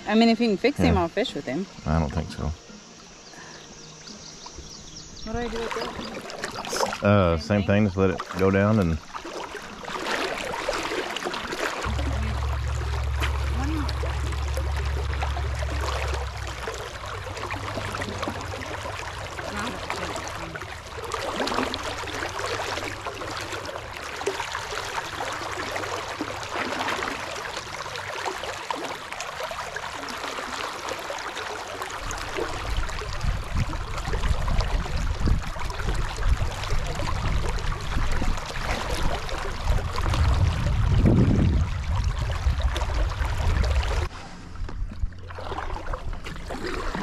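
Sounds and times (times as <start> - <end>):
low uneven rumble: 0.0 - 47.0
river water rushing: 5.3 - 33.1.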